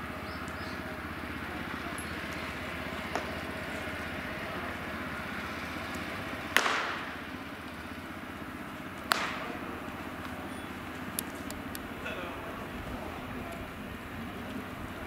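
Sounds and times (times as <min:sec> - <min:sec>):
steady background hum: 0:00.0 - 0:15.0
baseball popping into mitt: 0:06.6 - 0:07.2, 0:09.0 - 0:09.5.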